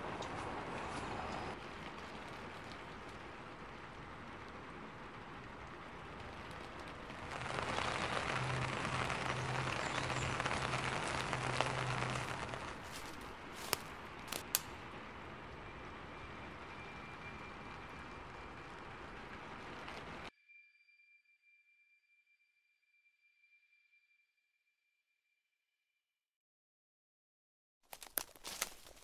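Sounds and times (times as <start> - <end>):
steady rain: 0.0 - 20.3.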